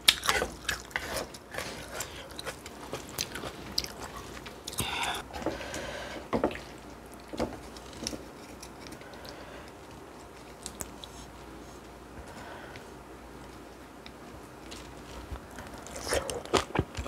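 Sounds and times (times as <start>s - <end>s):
chewing: 0.0s - 5.2s, 14.6s - 17.0s.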